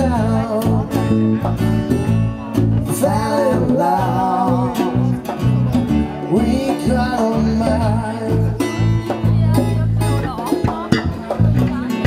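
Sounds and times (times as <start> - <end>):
bass notes: 0.0 - 12.0
strummed acoustic guitar: 0.0 - 12.0
sharp percussive hits: 10.7 - 11.8.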